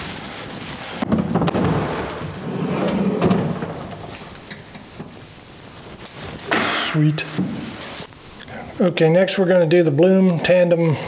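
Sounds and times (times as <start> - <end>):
drawer rumbling slide: 2.4 - 4.1.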